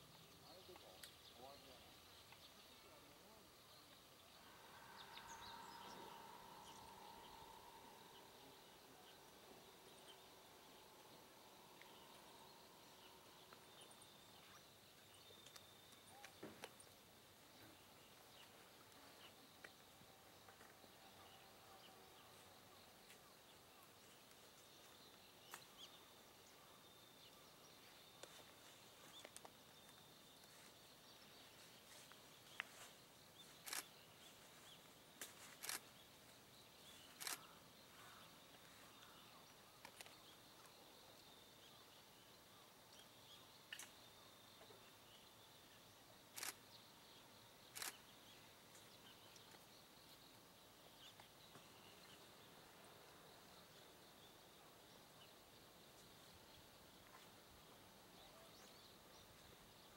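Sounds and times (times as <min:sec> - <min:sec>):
faint high-pitched chirping: 0:00.0 - 0:59.9
light hiss: 0:00.0 - 0:59.9
sharp clicks: 0:37.2 - 0:37.5, 0:46.4 - 0:46.6.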